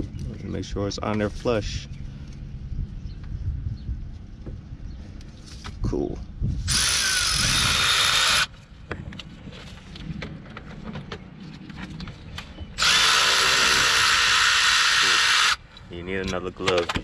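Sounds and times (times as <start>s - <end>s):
cordless ratchet running: 6.7s - 8.5s, 12.8s - 15.6s.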